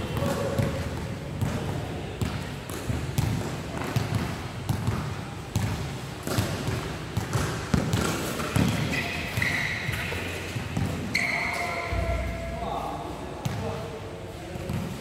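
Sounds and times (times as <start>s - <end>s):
basketball bouncing on indoor court: 0.0s - 12.5s, 13.4s - 13.8s
sneakers squeaking on court: 2.2s - 12.4s.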